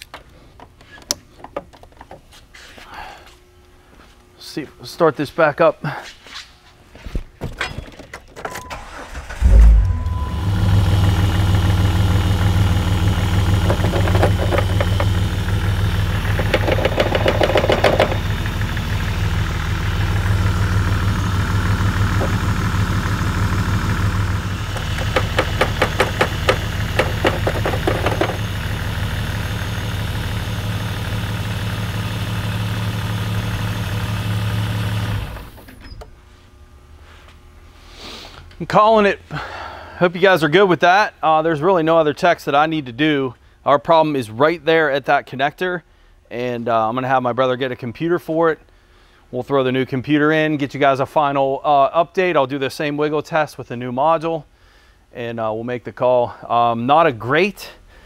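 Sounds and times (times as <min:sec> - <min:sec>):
car engine cranking and idling: 0:08.4 - 0:35.7.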